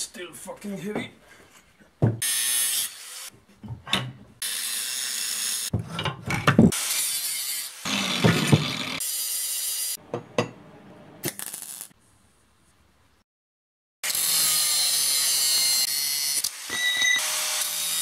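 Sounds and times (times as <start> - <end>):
metal clanks and knocks: 3.6 - 4.3, 5.7 - 6.7.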